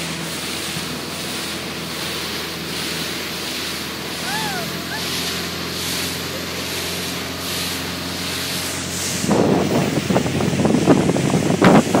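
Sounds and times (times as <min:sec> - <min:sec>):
speedboat engine drone: 0:00.0 - 0:12.0
wind and water spray rushing: 0:00.0 - 0:12.0
loud buffeting: 0:03.9 - 0:10.0.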